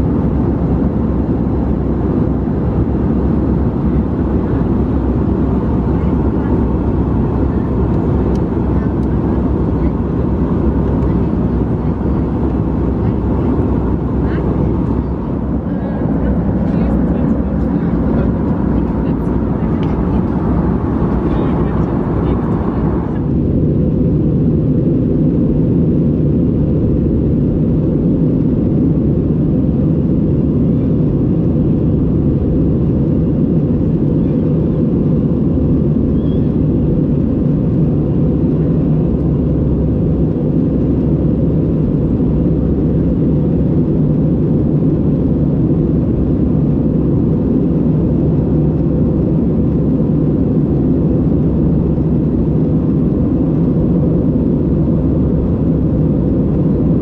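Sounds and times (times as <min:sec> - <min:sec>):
airplane cabin low rumble: 0:00.0 - 0:57.0.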